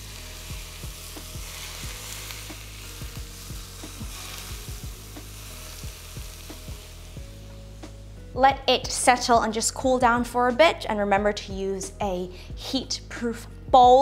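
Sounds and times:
hot oil sizzling and popping: 0.0 - 8.2.

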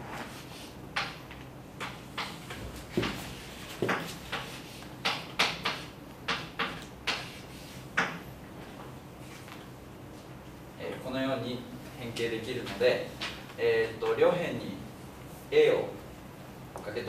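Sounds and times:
chalk tapping on a blackboard: 0.2 - 8.2.

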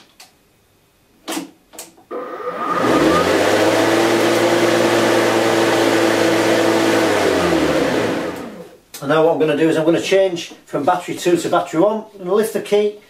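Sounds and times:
electric lawnmower whirring: 2.1 - 8.8.

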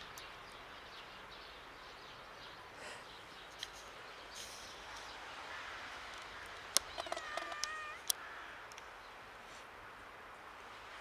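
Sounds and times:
kitten meowing: 7.0 - 8.1.

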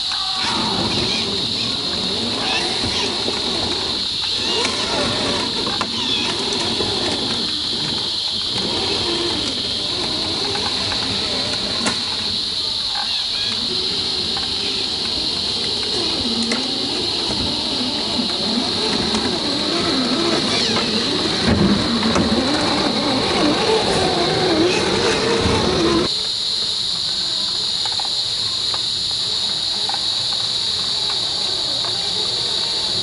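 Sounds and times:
toy truck motor and gears whining: 0.0 - 26.1
high insect drone: 0.0 - 33.0.

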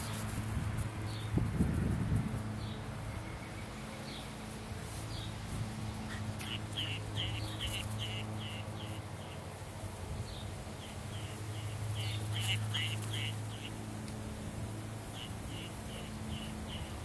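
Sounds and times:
bird chirping: 6.1 - 9.4, 10.2 - 13.8, 15.1 - 17.0.

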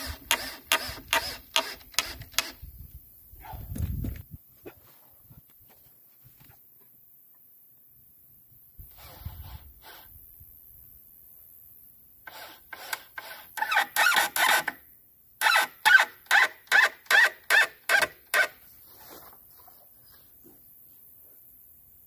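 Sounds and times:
cordless drill driving screw: 0.0 - 2.6, 8.9 - 10.1, 12.3 - 14.8, 15.4 - 18.5.

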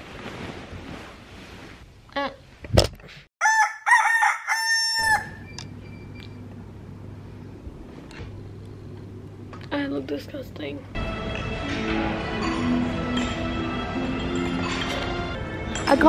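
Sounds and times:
rooster crowing: 3.4 - 5.5.

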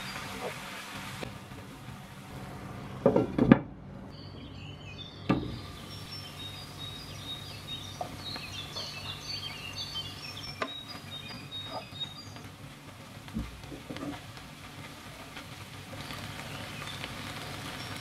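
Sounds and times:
small birds chirping: 4.1 - 12.6, 16.0 - 18.0.

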